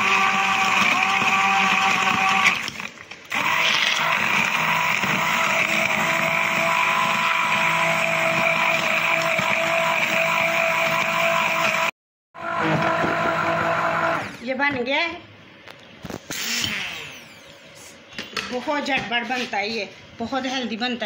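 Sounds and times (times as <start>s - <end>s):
immersion blender motor whine: 0.0s - 14.4s, 16.3s - 17.9s.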